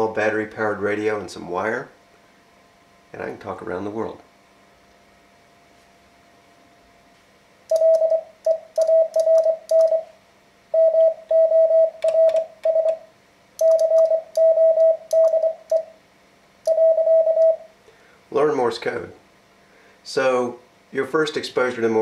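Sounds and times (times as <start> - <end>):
key clicks: 7.7 - 10.0, 12.0 - 13.0, 13.6 - 15.8
morse code beeps: 7.7 - 10.1, 10.8 - 13.0, 13.6 - 15.9, 16.7 - 17.6.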